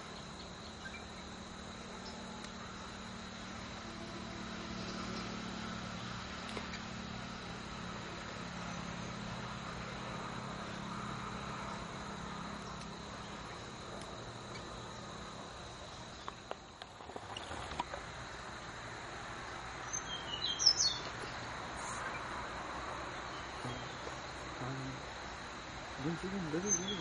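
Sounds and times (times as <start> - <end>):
distant engine drone: 0.0 - 27.0
insect tone: 0.0 - 27.0.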